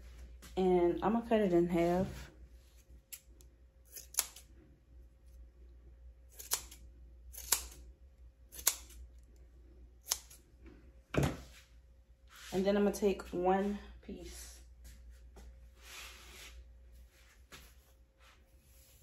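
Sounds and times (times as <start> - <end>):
scissors snipping hair: 3.1 - 4.5, 6.3 - 7.8, 8.5 - 9.0, 10.0 - 10.4.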